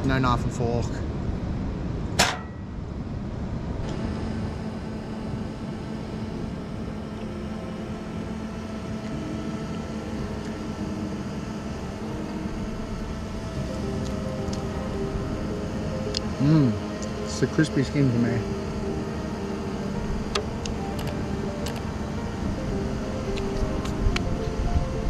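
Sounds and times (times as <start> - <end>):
wind rumble on microphone: 0.0 - 7.2, 20.1 - 25.0
faint hum: 0.0 - 25.0
sharp knock: 2.2 - 2.6.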